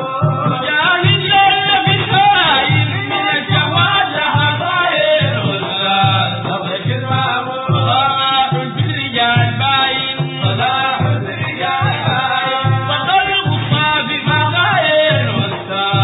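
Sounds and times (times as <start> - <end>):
hand-beaten drums: 0.0 - 16.0
men chanting in chorus: 0.0 - 16.0.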